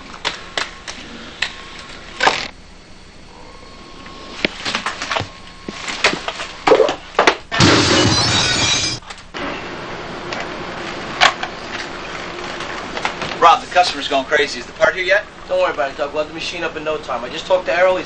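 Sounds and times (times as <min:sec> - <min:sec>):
glass breaking crash: 0:07.5 - 0:09.0.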